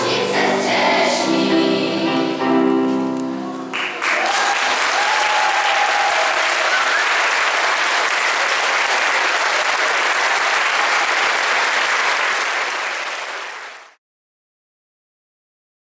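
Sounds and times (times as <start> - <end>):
audience applauding: 3.7 - 14.0.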